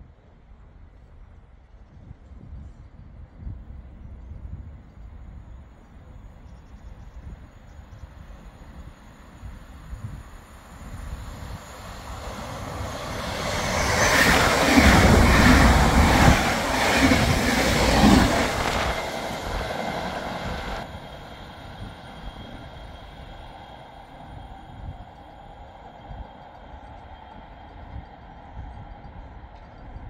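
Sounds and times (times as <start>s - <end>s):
train passing: 8.1s - 30.0s.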